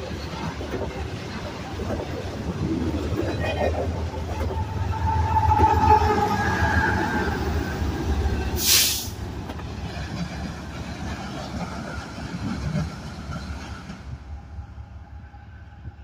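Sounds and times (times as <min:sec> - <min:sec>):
diesel locomotives passing: 0:00.0 - 0:16.0
engine and wheel rumble: 0:00.0 - 0:16.0
sharp hiss: 0:08.6 - 0:09.2.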